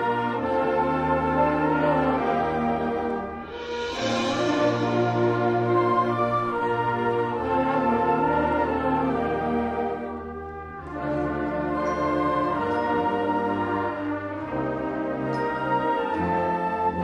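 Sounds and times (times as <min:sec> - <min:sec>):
concert band playing brass chords: 0:00.0 - 0:09.4.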